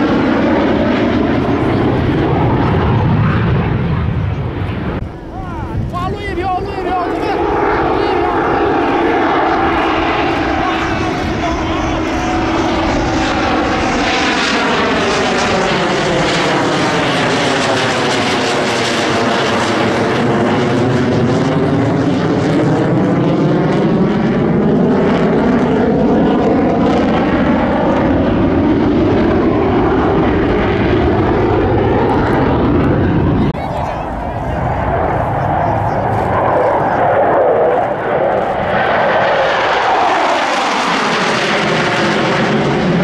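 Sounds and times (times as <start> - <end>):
fighter jet flying past: 0.0 - 43.0.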